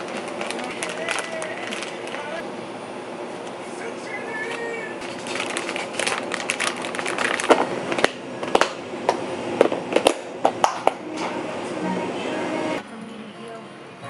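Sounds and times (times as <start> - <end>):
plastic bag crinkling: 0.0 - 2.4, 5.0 - 8.7.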